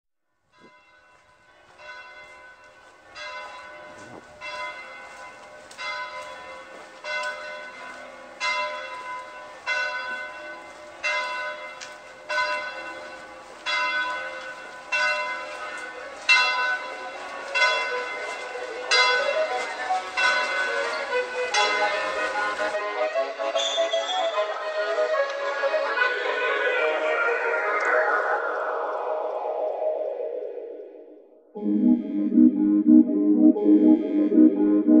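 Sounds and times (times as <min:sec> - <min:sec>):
church bell tolling: 0:00.5 - 0:22.8.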